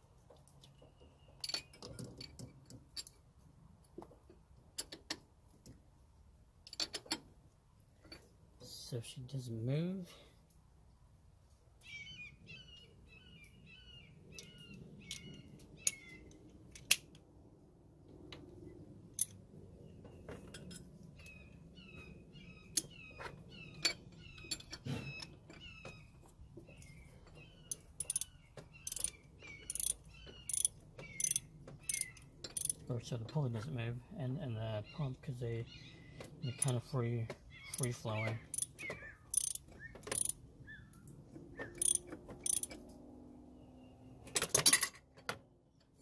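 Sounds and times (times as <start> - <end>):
metal tools clinking: 1.4 - 3.2, 20.3 - 21.1, 22.8 - 26.0, 26.7 - 33.7, 41.8 - 42.8, 44.3 - 46.0
ratchet wrench clicking: 27.7 - 32.8, 38.5 - 40.4, 41.8 - 42.8.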